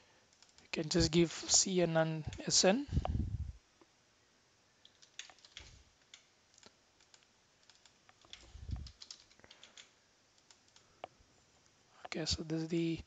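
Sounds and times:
typing on computer keyboard: 0.3s - 0.7s, 4.8s - 10.9s
soft low thumps: 2.9s - 3.6s, 8.5s - 8.9s.

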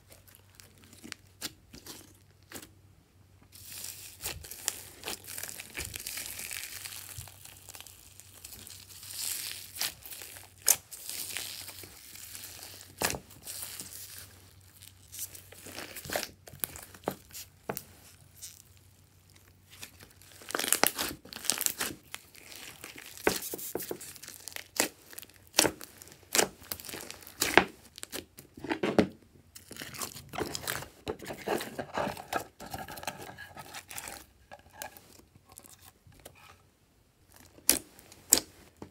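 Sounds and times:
slime squishing with crackles and pops: 3.5s - 31.1s, 37.2s - 38.9s.

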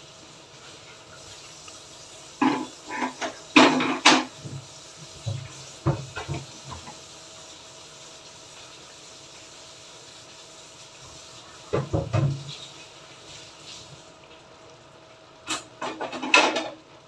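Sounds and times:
sauce simmering hiss: 0.0s - 17.0s
kitchenware clattering: 2.4s - 4.4s, 15.6s - 16.8s.

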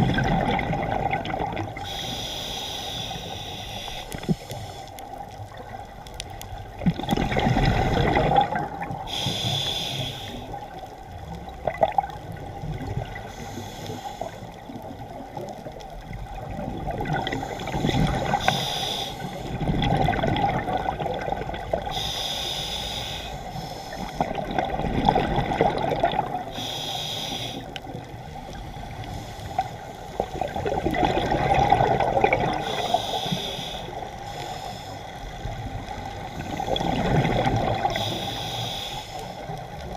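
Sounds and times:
exhaust bubbles rushing: 0.0s - 1.8s, 6.8s - 9.0s, 19.6s - 21.6s, 24.2s - 26.4s, 30.4s - 32.6s, 36.6s - 37.9s
regulator inhale hiss: 1.8s - 5.6s, 8.9s - 11.0s, 13.1s - 15.0s, 17.3s - 19.6s, 21.8s - 24.4s, 26.4s - 30.3s, 32.6s - 36.8s, 37.8s - 39.9s.

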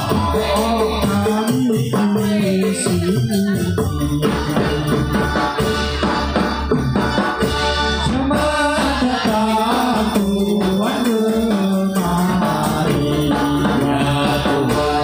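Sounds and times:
steady percussion beat: 0.0s - 15.0s
sung melody: 0.0s - 15.0s
low bass line: 2.5s - 9.7s.

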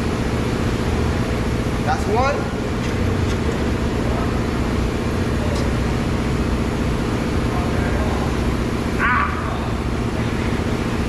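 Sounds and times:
engine droning: 0.0s - 11.0s.

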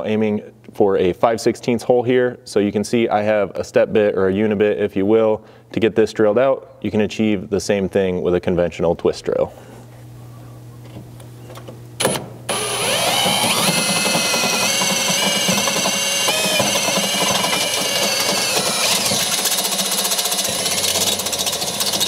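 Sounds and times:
cordless drill cutting steel: 12.5s - 22.0s.

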